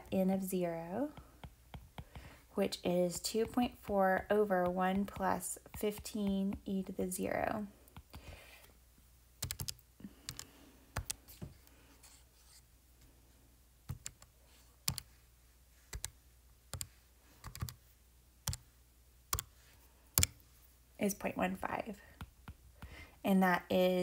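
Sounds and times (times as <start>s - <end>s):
calculator buttons clicking: 15.9s - 17.8s.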